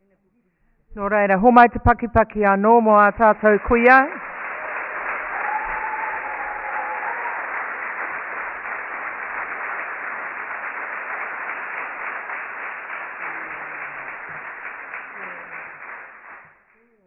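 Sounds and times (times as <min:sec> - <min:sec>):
audience applauding: 0:03.3 - 0:16.6.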